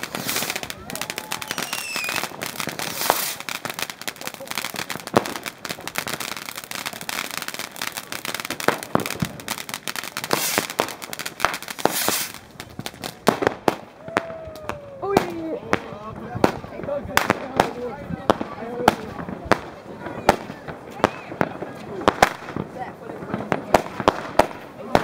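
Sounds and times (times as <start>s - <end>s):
firecrackers banging and crackling: 0.0s - 25.0s
fountain firework hissing: 0.0s - 25.0s.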